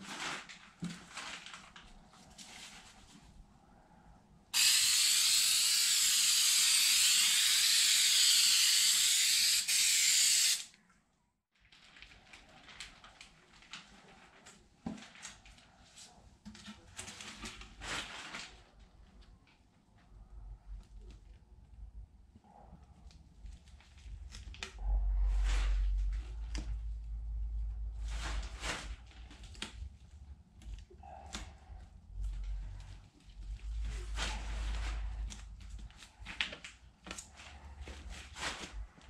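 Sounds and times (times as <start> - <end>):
rustling and handling sounds: 0.0 - 4.2, 11.6 - 39.0
aerosol can spraying: 4.6 - 10.7.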